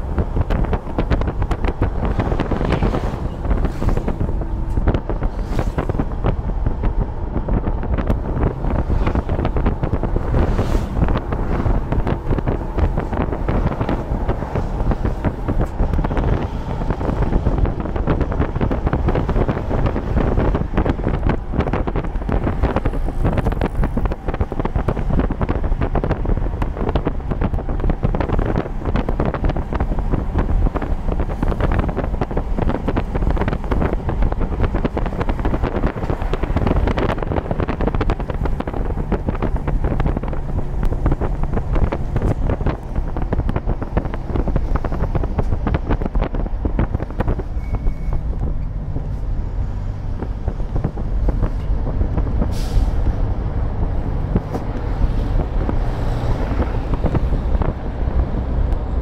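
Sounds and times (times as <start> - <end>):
car engine: 0.0 - 59.0
car road noise: 0.0 - 59.0
passing traffic: 0.0 - 59.0
wind buffeting microphone: 0.0 - 59.0.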